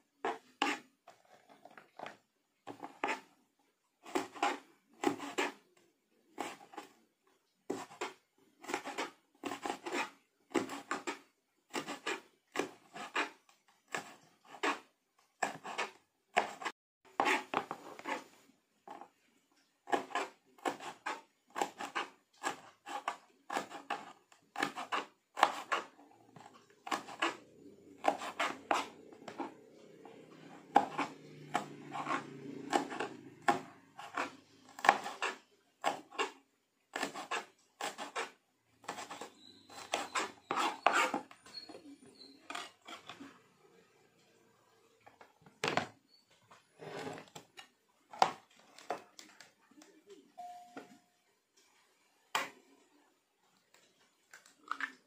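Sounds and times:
knife chopping on cutting board: 4.1 - 5.6, 15.4 - 18.1, 19.9 - 25.9, 26.8 - 27.4, 28.0 - 41.3.

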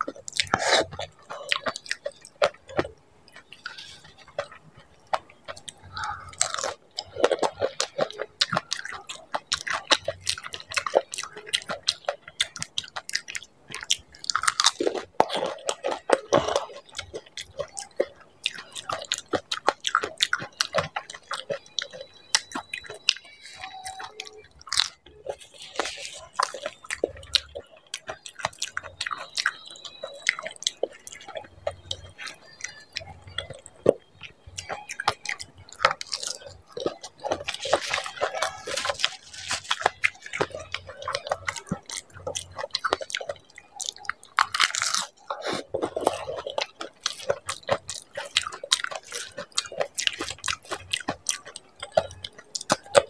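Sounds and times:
crisp shells crunching and chewing: 0.0 - 53.0.

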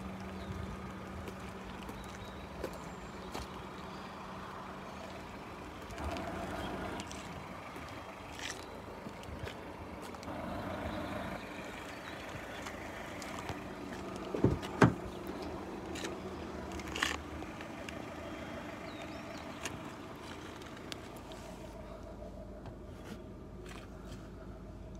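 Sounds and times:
constant low hum: 0.0 - 24.9
car door handle and latch clacks: 14.3 - 15.1.

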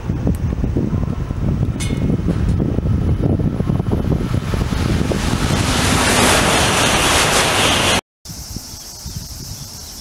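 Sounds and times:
wind buffeting microphone: 0.0 - 10.0
train rushing past: 2.1 - 8.0.

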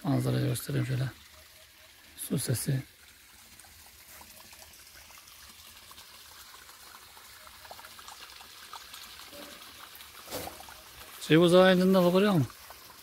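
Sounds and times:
small stream trickling: 0.0 - 13.0
small water splashes: 1.0 - 13.0.

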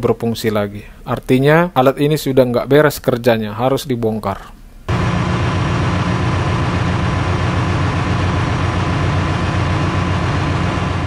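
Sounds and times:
faint steady whine: 4.5 - 11.0
engine room machinery drone: 4.9 - 11.0.

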